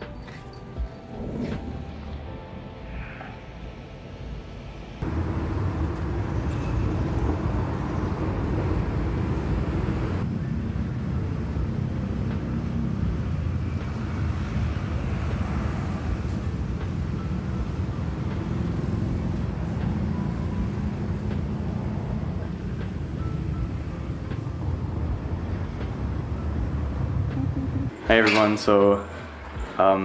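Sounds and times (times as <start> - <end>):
low rumble of road traffic: 0.0 - 30.0.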